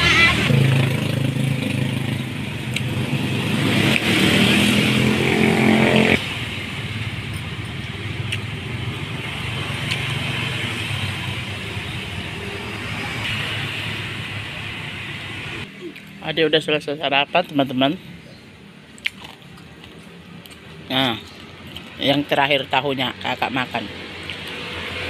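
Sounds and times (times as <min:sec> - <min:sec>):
vehicle engine passing: 0:00.0 - 0:15.7
traffic rumble: 0:00.0 - 0:25.0.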